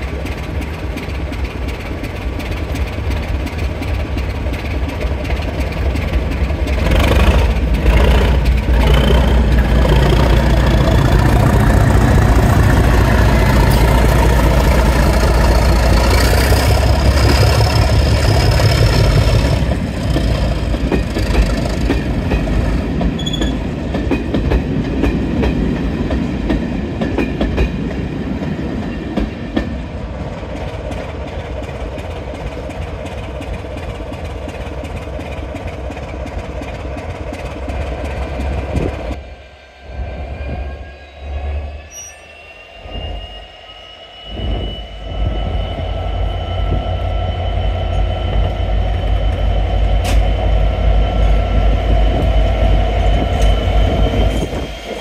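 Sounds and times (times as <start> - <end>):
diesel locomotive engine working hard: 0.0 - 55.0
high whistle rising in pitch: 39.2 - 55.0.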